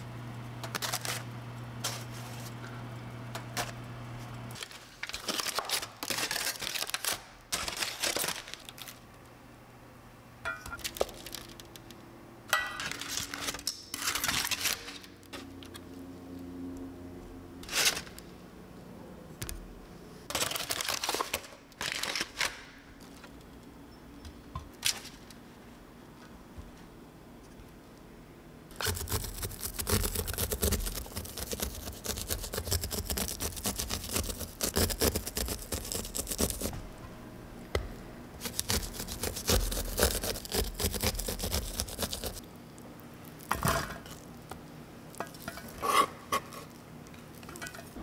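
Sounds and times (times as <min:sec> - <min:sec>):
steady low hum: 0:00.0 - 0:04.8, 0:22.8 - 0:48.0
crinkling rustling handling: 0:04.6 - 0:09.1.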